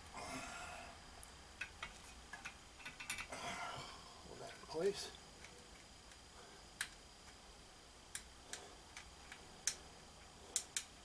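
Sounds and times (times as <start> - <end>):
metal hardware clicking and tapping: 1.6 - 3.3.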